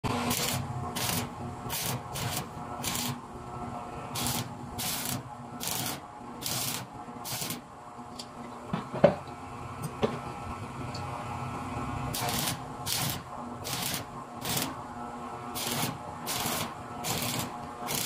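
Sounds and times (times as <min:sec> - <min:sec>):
arc welding crackling and hissing: 0:00.0 - 0:03.2, 0:04.1 - 0:07.7, 0:12.1 - 0:14.8, 0:15.5 - 0:18.0.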